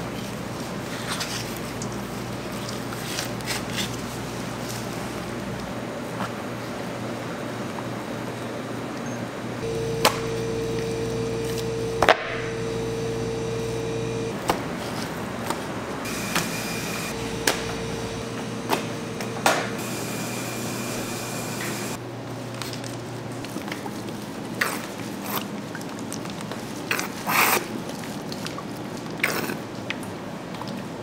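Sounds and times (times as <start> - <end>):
faint tone: 9.6 - 14.4
steady machine hum: 9.6 - 22.2.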